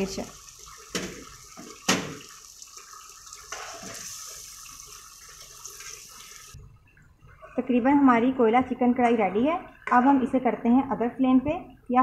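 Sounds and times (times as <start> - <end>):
gravy sizzling in a pan: 0.0 - 6.6.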